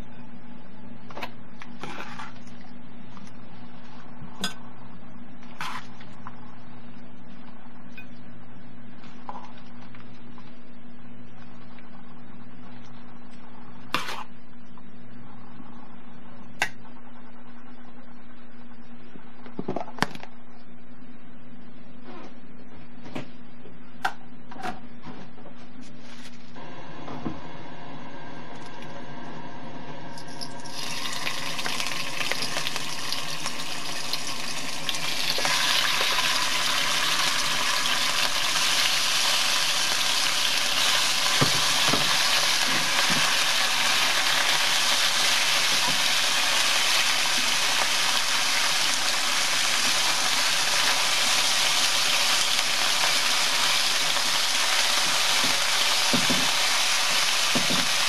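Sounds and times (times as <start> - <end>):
steady hum: 0.0 - 58.0
meat sizzling in a frying pan: 30.6 - 58.0.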